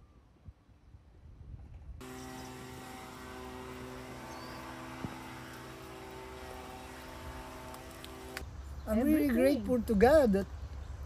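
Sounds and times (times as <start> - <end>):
steady mechanical hum: 2.0 - 9.0.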